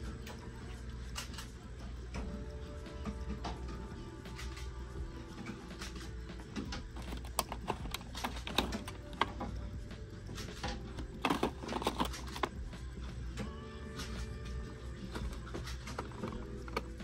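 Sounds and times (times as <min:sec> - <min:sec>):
plastic boxes clicking and clattering: 0:05.8 - 0:09.6, 0:10.4 - 0:12.7, 0:15.1 - 0:17.0.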